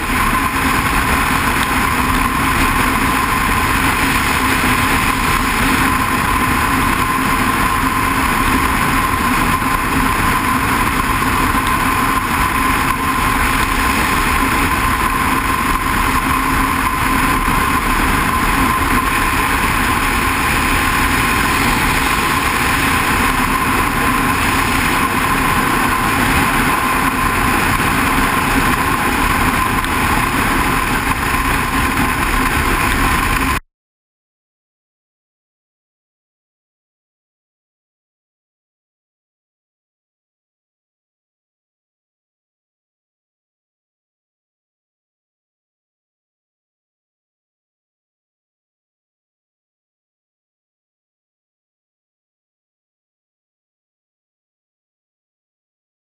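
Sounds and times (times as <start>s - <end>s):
motorcycle engine drone: 0.0s - 33.6s
wind and road noise: 0.0s - 33.6s.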